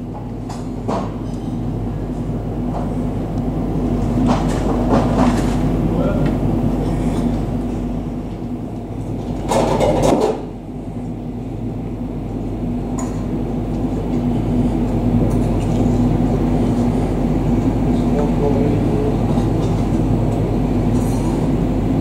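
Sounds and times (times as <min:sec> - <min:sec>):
turboprop engines droning: 0:00.0 - 0:22.0.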